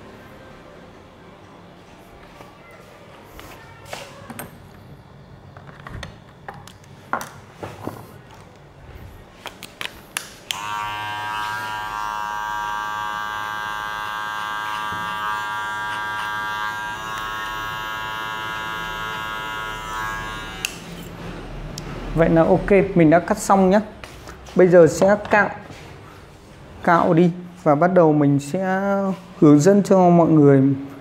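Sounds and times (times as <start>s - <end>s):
electric hair clipper buzzing: 10.4s - 21.2s.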